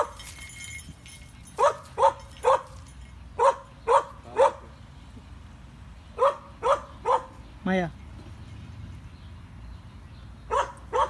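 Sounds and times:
dog barking: 1.6 - 2.7, 3.4 - 4.7, 6.2 - 7.4, 10.5 - 11.0.

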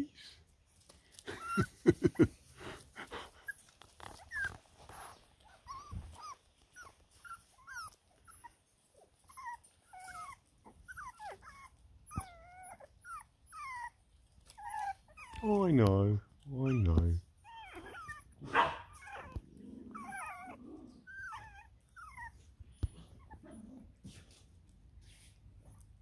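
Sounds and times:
puppies whining: 1.3 - 1.8, 3.2 - 15.6, 16.6 - 24.0.

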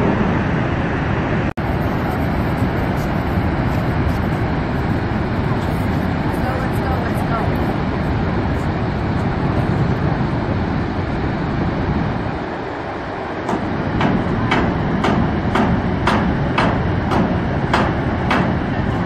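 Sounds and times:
waterfall roaring: 0.0 - 19.0.

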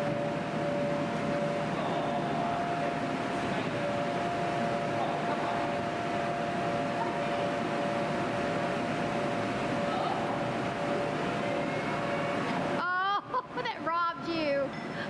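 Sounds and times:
two-note whine: 0.0 - 8.7, 9.8 - 12.6
electric fans droning: 0.0 - 15.0.

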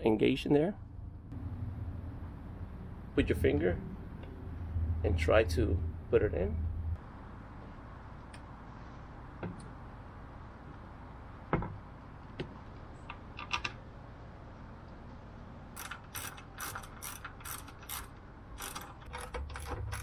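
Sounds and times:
ratchet wrench clicking: 15.8 - 20.0.

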